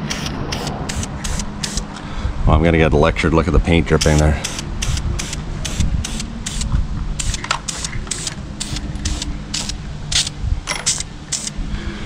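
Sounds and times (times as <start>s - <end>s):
spray can hissing: 0.0s - 1.8s, 4.0s - 10.3s, 10.9s - 11.6s
low steady rumble: 0.0s - 12.0s.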